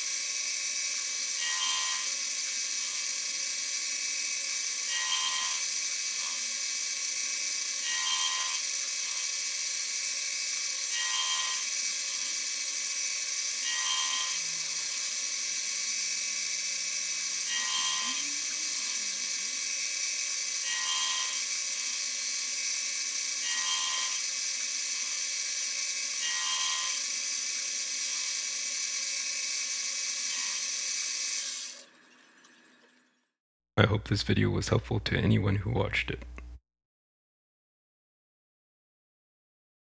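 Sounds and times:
milling machine running: 0.2 - 28.3
gear cutter grinding into brass: 10.6 - 24.4.

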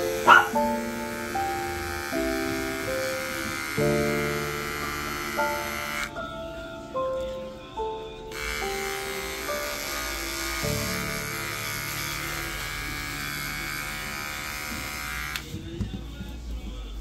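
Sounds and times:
electric clipper buzzing: 0.0 - 6.2, 8.3 - 15.6.

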